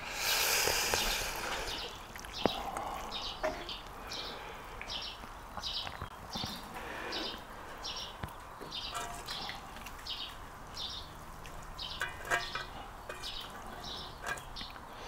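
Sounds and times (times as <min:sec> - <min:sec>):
bird chirping: 0:00.0 - 0:15.0
faint countryside background noise: 0:00.0 - 0:15.0.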